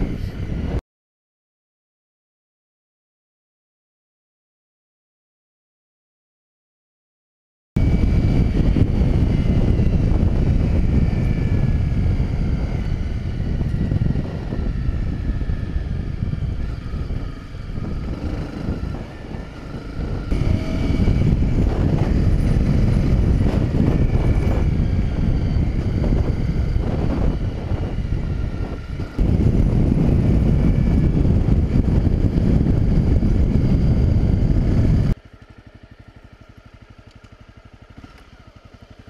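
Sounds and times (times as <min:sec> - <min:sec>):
motorcycle engine running: 0:00.0 - 0:00.8, 0:07.8 - 0:39.0
wind on microphone: 0:00.0 - 0:00.8, 0:07.8 - 0:35.2.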